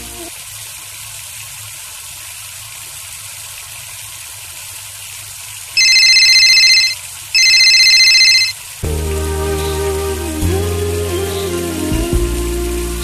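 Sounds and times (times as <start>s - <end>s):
telephone ringing: 5.8s - 8.6s.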